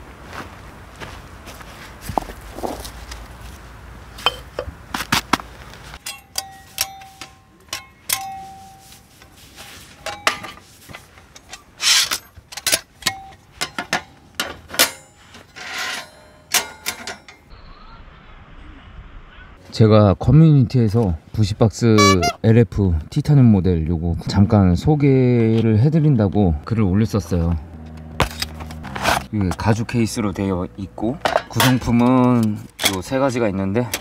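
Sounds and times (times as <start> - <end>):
metal gear taps and clinks: 6.0 - 17.5.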